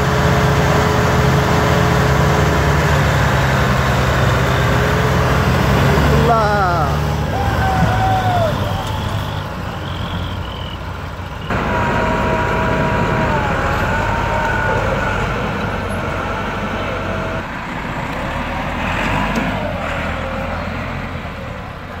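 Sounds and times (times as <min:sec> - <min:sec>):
tractor engines under load: 0:00.0 - 0:22.0.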